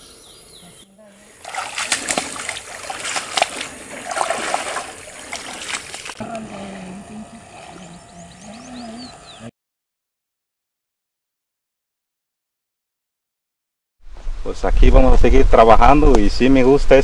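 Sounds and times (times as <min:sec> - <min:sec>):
water splashing: 0:01.2 - 0:09.2
low wavering hum: 0:01.4 - 0:09.5.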